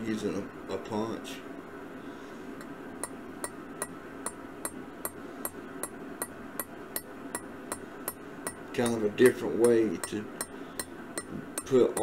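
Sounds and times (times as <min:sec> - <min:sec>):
metallic taps on steel punch: 0:03.0 - 0:12.0.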